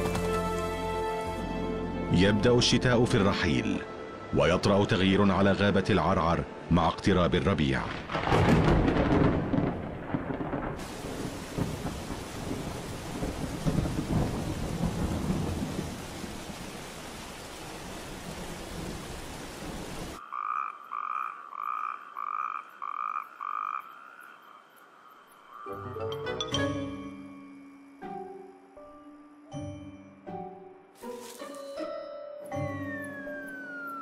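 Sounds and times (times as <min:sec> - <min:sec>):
steady rain: 0:00.0 - 0:02.0, 0:07.5 - 0:20.2
rolling thunder: 0:07.9 - 0:16.6.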